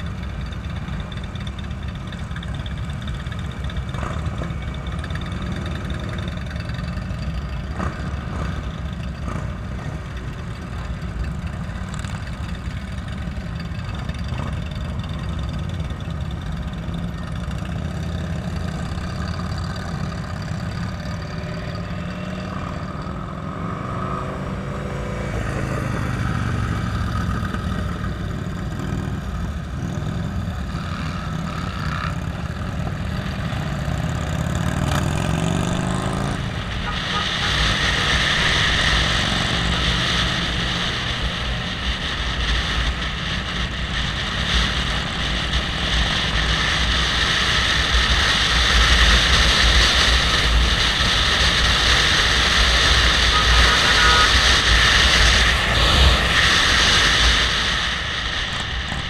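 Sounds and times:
motorcycle engines rumbling: 0.0 - 59.0
motorcycle engine revving: 2.1 - 59.0.

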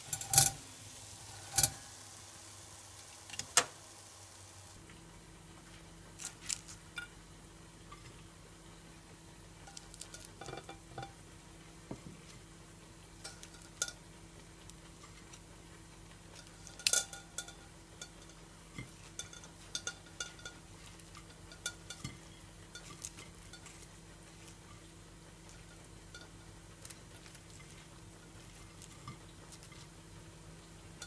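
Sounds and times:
chopsticks tapping: 16.4 - 22.2.

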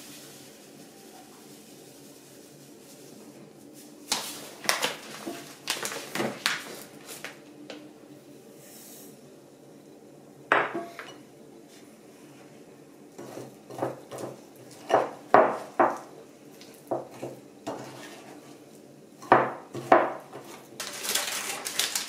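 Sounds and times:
kitchenware clinking on ceramic bowl: 10.5 - 11.2.

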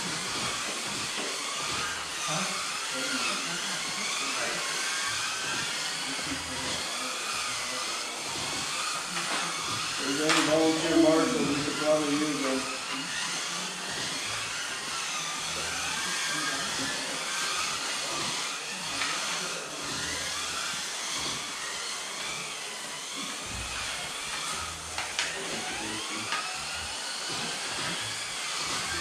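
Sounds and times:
small electric motors whining: 0.0 - 29.0.

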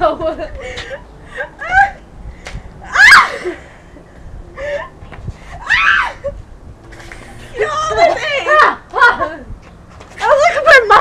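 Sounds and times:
girls shrieking and laughing: 0.0 - 2.1, 2.8 - 6.5, 7.2 - 9.5.

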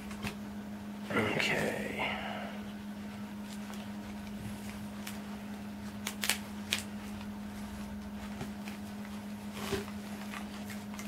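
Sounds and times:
low hum: 1.0 - 4.8.

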